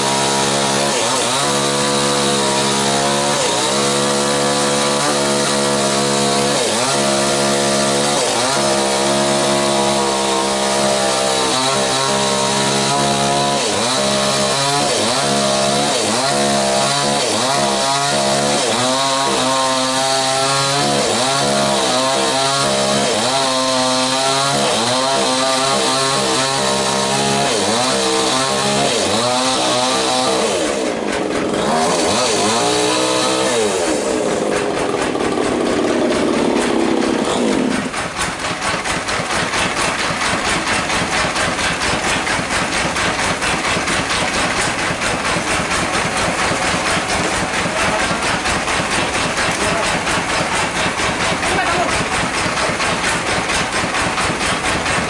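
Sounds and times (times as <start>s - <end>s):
chainsaw cutting log: 0.0s - 55.0s
engine idling: 30.8s - 31.6s, 33.8s - 55.0s.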